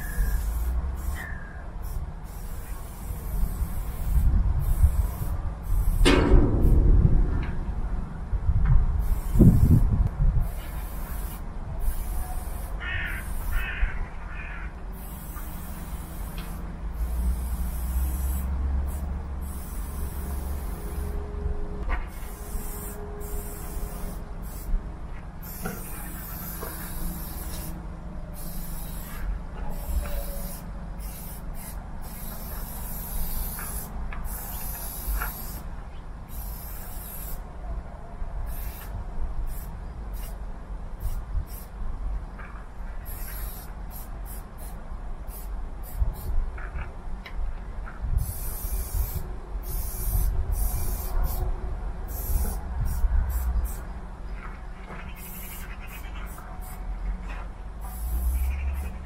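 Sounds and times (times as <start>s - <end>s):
spray paint can hissing: 0.0s - 6.8s, 9.0s - 13.8s, 14.9s - 21.2s, 22.1s - 24.7s, 25.4s - 35.7s, 36.3s - 37.4s, 38.5s - 38.9s, 39.5s - 40.4s, 41.0s - 41.7s, 43.0s - 46.4s, 48.2s - 51.5s, 52.1s - 53.8s, 55.2s - 56.8s, 57.8s - 59.0s
steady low rumble: 0.0s - 59.0s.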